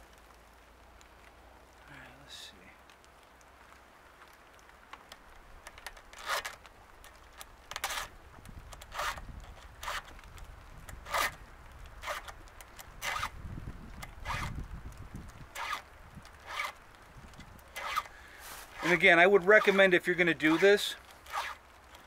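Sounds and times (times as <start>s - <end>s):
hand file rasping chainsaw chain: 7.8s - 8.1s, 8.9s - 9.2s, 9.8s - 10.1s, 11.0s - 11.4s, 12.0s - 12.3s, 13.0s - 13.3s, 14.2s - 14.5s, 15.6s - 15.8s, 16.4s - 16.7s, 17.8s - 18.1s, 18.7s - 21.6s.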